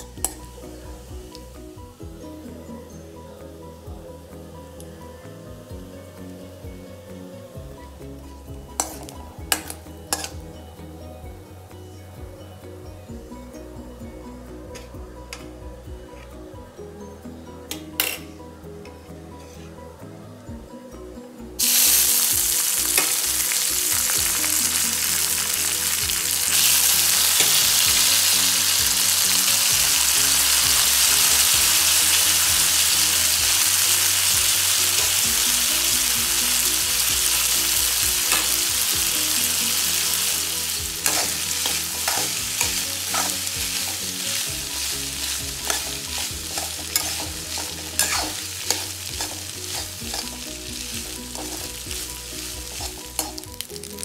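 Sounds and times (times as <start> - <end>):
pasta sizzling in hot oil: 8.8 - 10.3, 21.6 - 54.0
steel spoon scraping a pan: 8.8 - 10.4, 39.3 - 51.9, 52.7 - 53.5.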